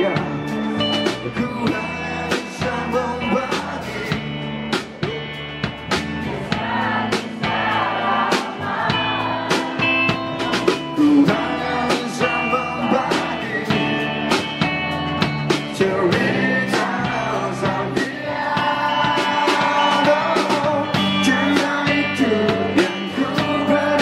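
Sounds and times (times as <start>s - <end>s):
man singing: 0.0s - 4.4s, 10.8s - 14.4s, 15.5s - 24.0s
electric guitars: 0.0s - 24.0s
steady drum beat: 0.0s - 24.0s.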